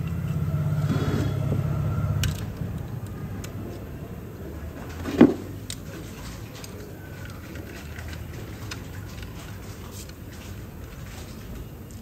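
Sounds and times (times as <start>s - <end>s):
pulsing machine hum: 0.0s - 4.4s.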